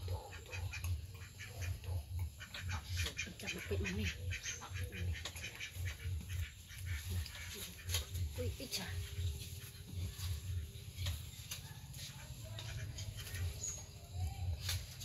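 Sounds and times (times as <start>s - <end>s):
clicky animal calls: 0.0s - 8.1s
low pulsing hum: 0.0s - 15.0s.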